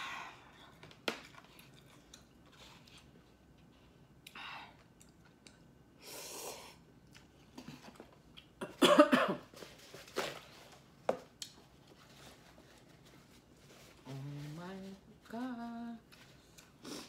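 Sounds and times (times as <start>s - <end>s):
person coughing: 8.6s - 9.5s.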